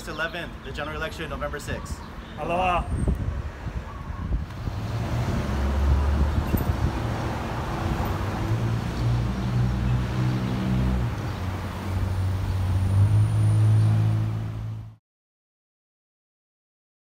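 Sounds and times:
cars driving past: 3.2s - 15.0s.

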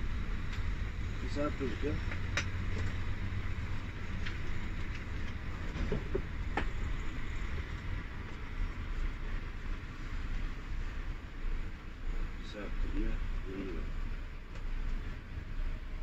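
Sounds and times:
coach engine and tyres rumbling: 0.0s - 16.0s.

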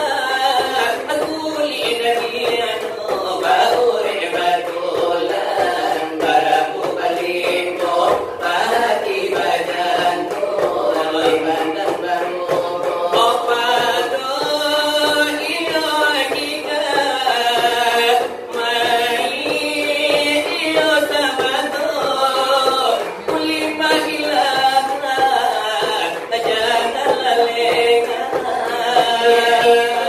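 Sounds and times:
singers chanting devotional song: 0.0s - 30.0s.

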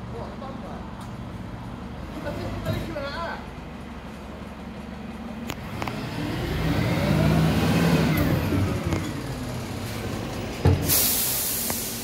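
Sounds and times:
diesel engine revving: 5.4s - 12.0s.

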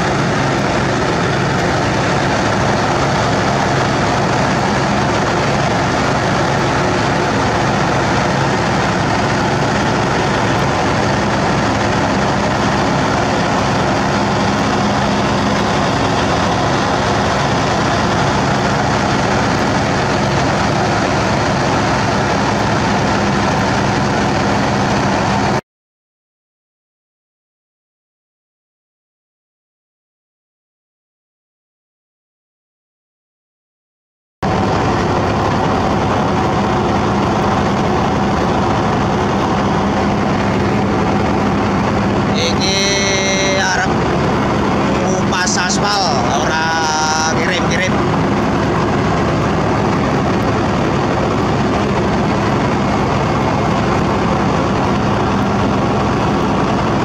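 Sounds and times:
heavy diesel engine running: 0.0s - 25.6s, 34.4s - 57.0s
low hum: 0.0s - 25.6s, 34.4s - 57.0s.

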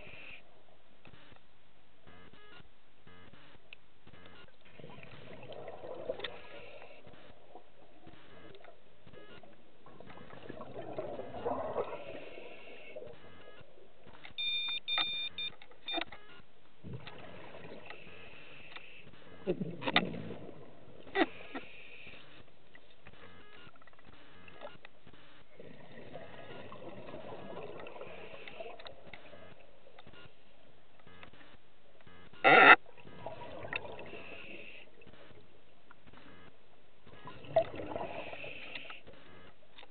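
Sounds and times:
exhaled bubbles underwater: 4.7s - 8.0s, 9.4s - 13.2s, 16.8s - 18.1s, 19.4s - 21.1s, 25.5s - 30.0s, 32.8s - 35.1s, 37.1s - 39.0s.

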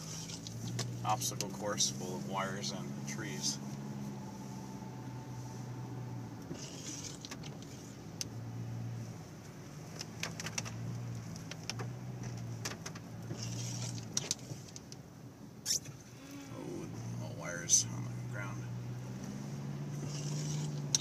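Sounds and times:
car engine and tyres hum: 0.0s - 21.0s.

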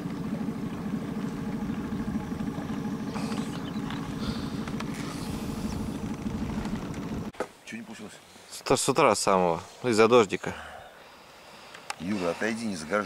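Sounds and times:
outboard motor running: 0.0s - 7.3s.

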